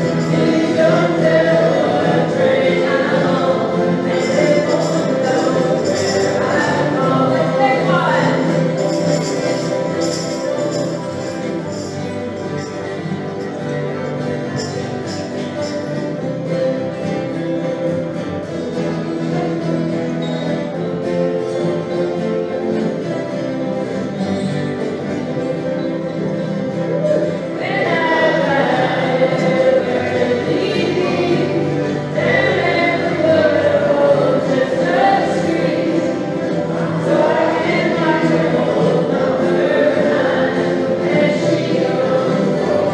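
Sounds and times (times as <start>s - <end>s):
group singing: 0.0s - 12.5s, 26.7s - 42.9s
acoustic guitars and strings playing: 0.0s - 42.9s.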